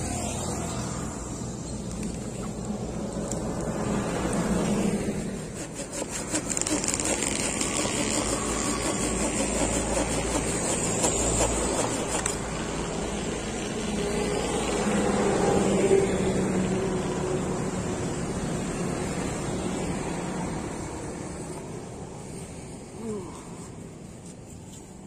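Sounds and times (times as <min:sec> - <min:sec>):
hand saw rasping through branch: 0:05.1 - 0:12.5.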